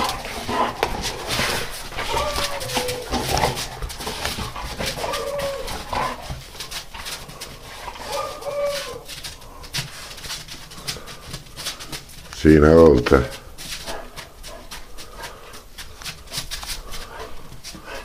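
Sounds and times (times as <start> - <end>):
dogs scuffling: 0.0 - 18.0
dog whining: 1.3 - 6.5, 7.8 - 9.2.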